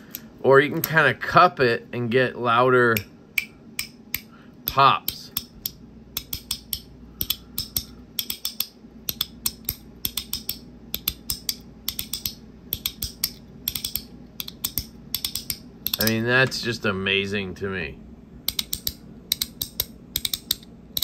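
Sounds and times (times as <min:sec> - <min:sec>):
plastic fidget toy clicking: 0:04.7 - 0:16.2, 0:18.5 - 0:21.0.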